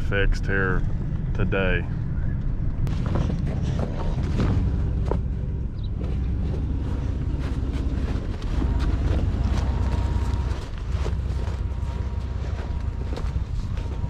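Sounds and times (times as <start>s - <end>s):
truck engine idling: 2.2s - 14.0s
footsteps crunching in snow: 2.9s - 14.0s.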